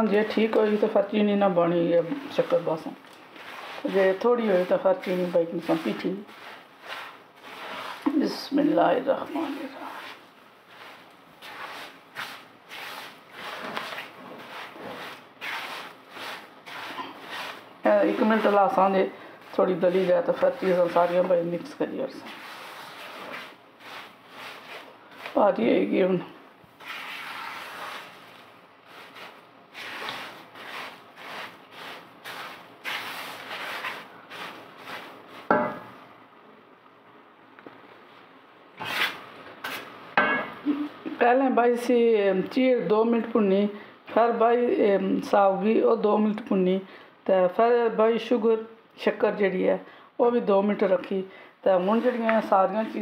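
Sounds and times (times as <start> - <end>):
wooden spatula scraping a pan: 0.1 - 25.9, 26.8 - 35.9, 51.8 - 53.0.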